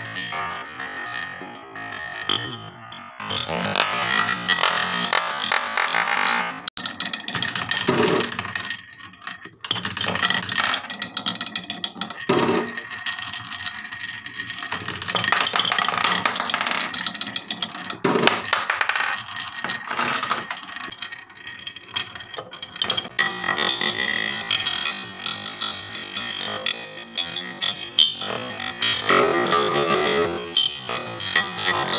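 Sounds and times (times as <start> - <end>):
marbles clacking: 0.0 - 25.2
marbles rolling on wooden track: 3.2 - 31.9.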